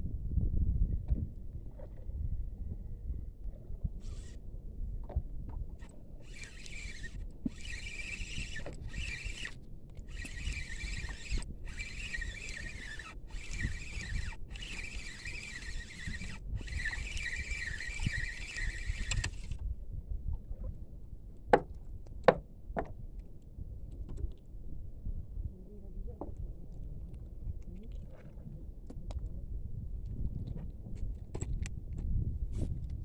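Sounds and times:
fishing reel gears whirring: 0:04.0 - 0:04.4, 0:05.8 - 0:19.6.

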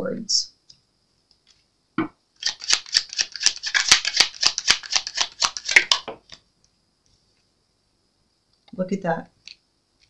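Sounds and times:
cards shuffling: 0:02.4 - 0:06.4.

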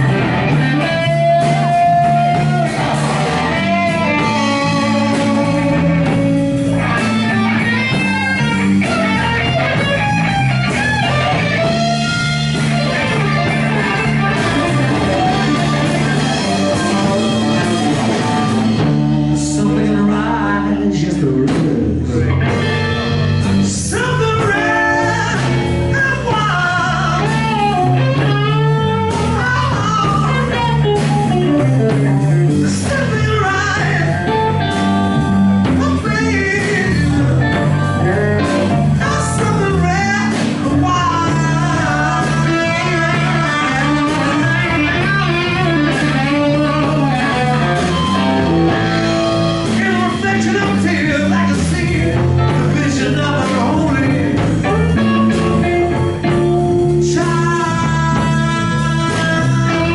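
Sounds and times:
rock band playing: 0:00.0 - 0:59.9
man singing: 0:18.7 - 0:22.7, 0:23.5 - 0:28.5, 0:29.1 - 0:30.8, 0:31.4 - 0:34.6, 0:35.7 - 0:55.8, 0:56.8 - 0:59.9.

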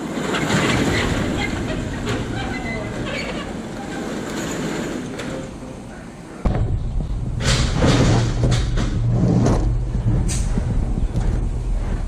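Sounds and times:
heavy box thuds and knocks: 0:06.5 - 0:11.4.

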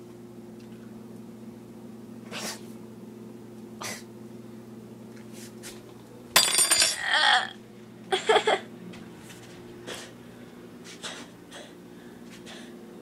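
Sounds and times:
person coughing and gagging: 0:06.7 - 0:07.6, 0:08.2 - 0:08.7.

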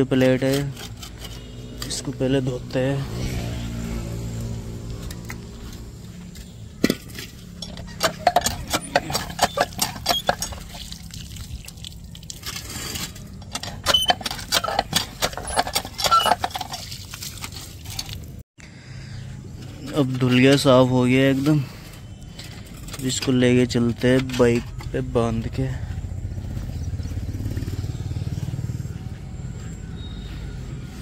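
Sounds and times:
metal plate clinking and knocking: 0:06.8 - 0:10.8, 0:13.4 - 0:16.9.

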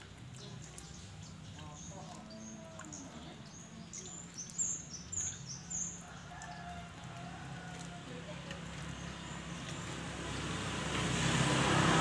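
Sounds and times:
birds chirping: 0:00.0 - 0:07.7.

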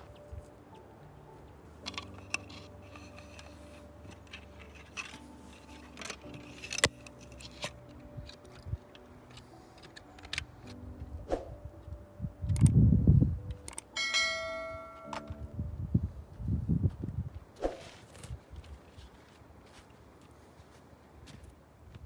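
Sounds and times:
faint music: 0:00.0 - 0:22.0
wooden sticks knocking and clicking: 0:01.8 - 0:10.8.

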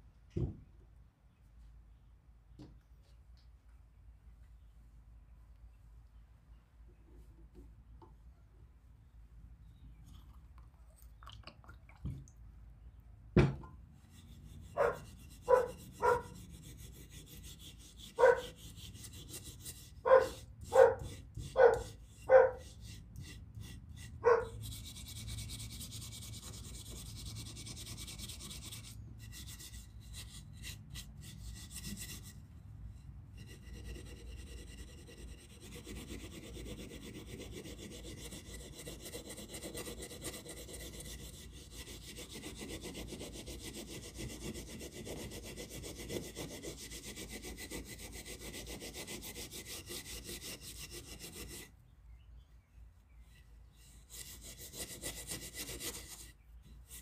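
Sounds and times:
hand abrasive rasping rubbing: 0:14.1 - 0:32.4, 0:33.4 - 0:51.7, 0:53.8 - 0:56.3.

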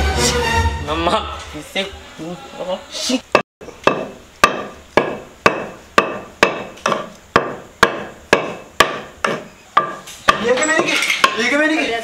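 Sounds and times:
wooden pestle pounding in mortar: 0:03.3 - 0:11.6.

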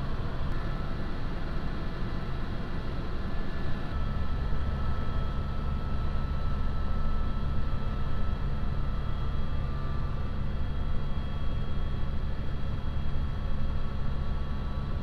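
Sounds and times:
helicopter rotor and engine drone: 0:00.0 - 0:15.0.

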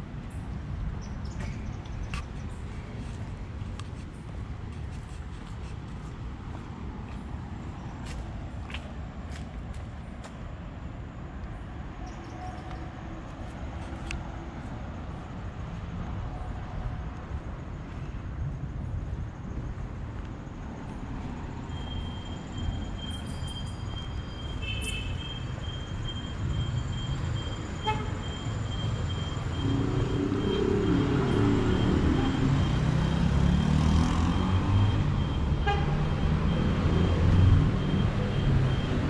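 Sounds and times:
traffic rumble: 0:00.0 - 0:39.0
footsteps on pavement: 0:01.3 - 0:10.5, 0:12.6 - 0:21.5.

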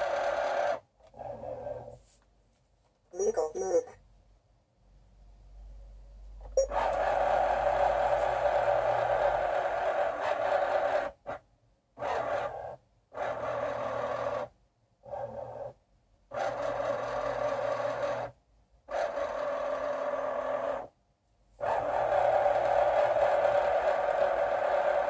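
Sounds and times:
mechanism whirring under board: 0:21.6 - 0:25.0.

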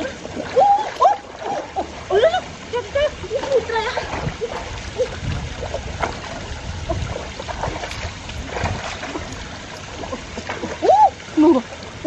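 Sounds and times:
small splashes: 0:00.0 - 0:12.0
water sloshing and swirling: 0:00.0 - 0:12.0.

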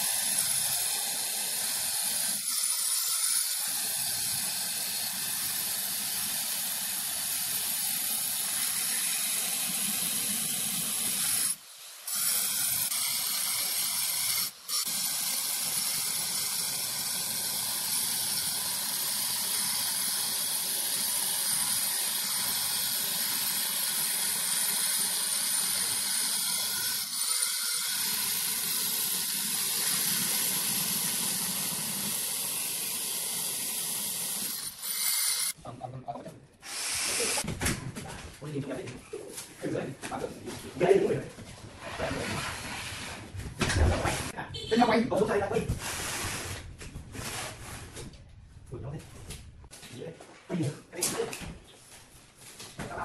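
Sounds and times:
angle grinder cutting stone: 0:00.0 - 0:35.6.

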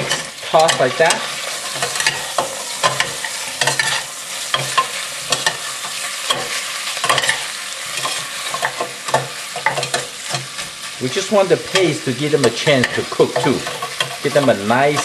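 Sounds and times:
metal spoons scraping a pot: 0:00.0 - 0:10.8, 0:11.6 - 0:15.0
meat sizzling in oil: 0:00.0 - 0:15.0.

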